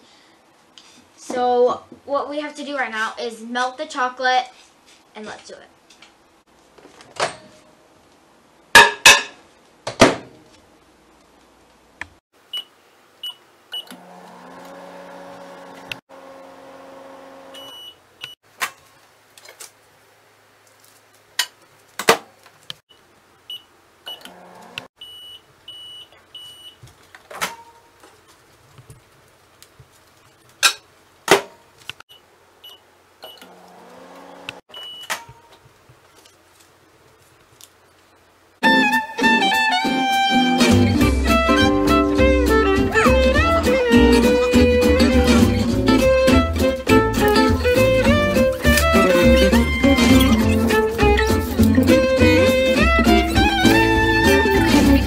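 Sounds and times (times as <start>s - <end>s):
microwave oven humming: 12.6s - 18.4s, 22.9s - 25.9s, 32.7s - 35.2s.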